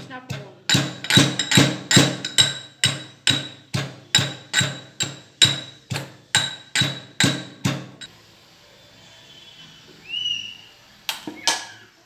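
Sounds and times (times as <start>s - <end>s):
metal pestle pounding in mortar: 0.0s - 8.1s.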